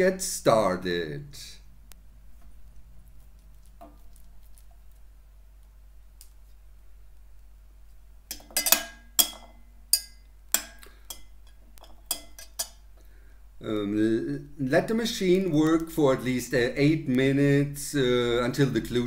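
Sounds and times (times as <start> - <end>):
metal bowls clinking: 8.3 - 12.8.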